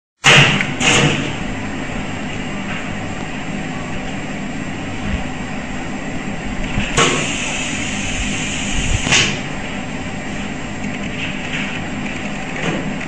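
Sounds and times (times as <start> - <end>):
machine mechanical hum: 0.2 - 13.0
short hisses: 7.0 - 9.4.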